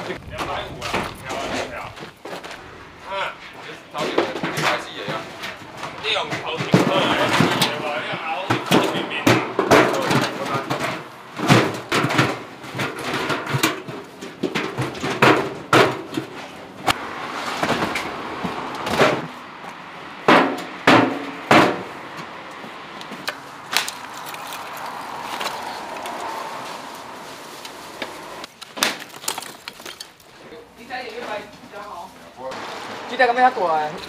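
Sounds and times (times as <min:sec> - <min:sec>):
loud metal bangs: 0:00.0 - 0:22.9
metallic knocks and clanks: 0:03.4 - 0:17.0, 0:17.6 - 0:22.3.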